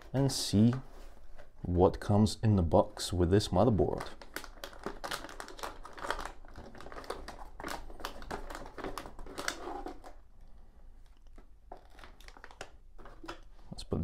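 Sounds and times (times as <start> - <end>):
metallic bag crinkling: 3.8 - 10.2.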